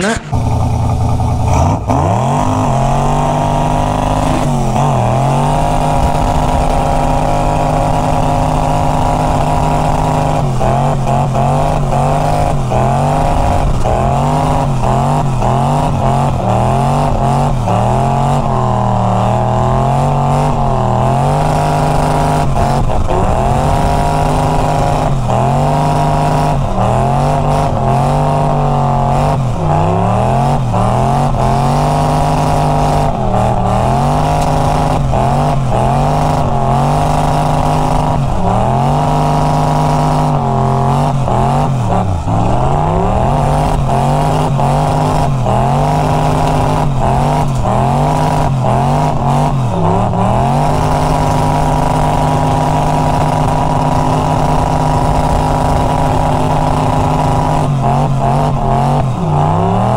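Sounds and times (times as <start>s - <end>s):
car engine revving hard: 0.0s - 59.9s.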